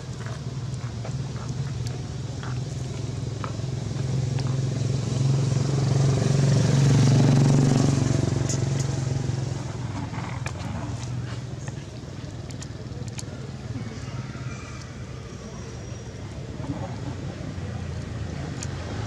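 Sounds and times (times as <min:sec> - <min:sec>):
vehicle engine passing: 0:01.8 - 0:14.8.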